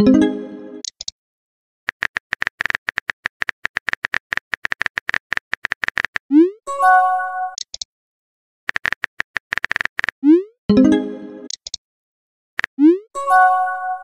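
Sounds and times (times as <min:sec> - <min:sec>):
phone keyboard typing clicks: 0:01.9 - 0:06.2, 0:07.6 - 0:07.9, 0:08.7 - 0:10.2, 0:11.5 - 0:11.8.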